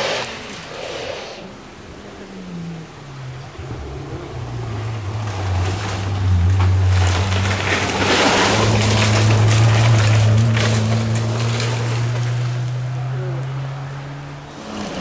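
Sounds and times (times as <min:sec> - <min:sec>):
tyres crunching on gravel: 0:03.6 - 0:13.1.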